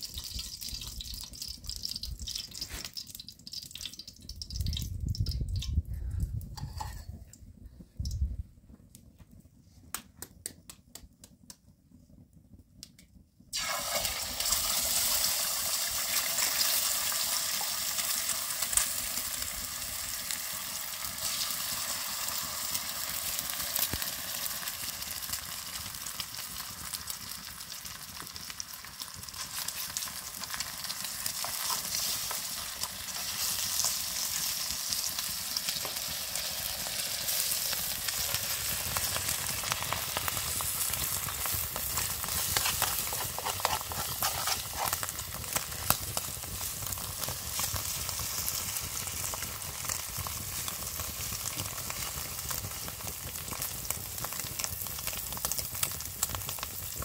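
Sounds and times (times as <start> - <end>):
eggs sizzling in a pan: 0.0 - 4.8, 13.5 - 57.0
egg cracking clicks: 0.2 - 5.8.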